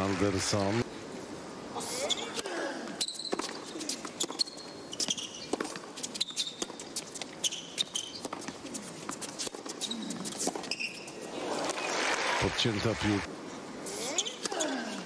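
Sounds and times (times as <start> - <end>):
sneaker squeaks on court: 3.0 - 8.5, 9.6 - 11.2
racquets striking tennis ball: 3.2 - 11.8.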